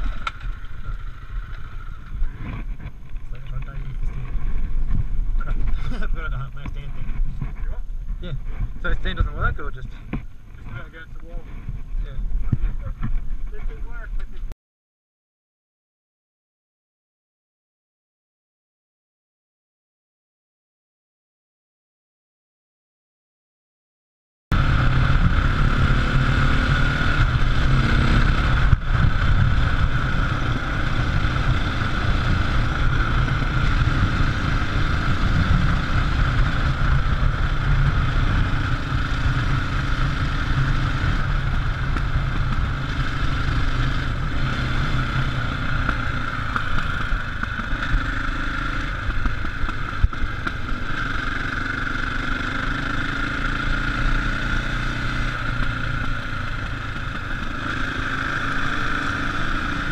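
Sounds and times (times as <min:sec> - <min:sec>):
motorcycle engine running: 0:00.0 - 0:14.5, 0:24.5 - 0:59.9
wind noise on microphone: 0:24.5 - 0:38.7.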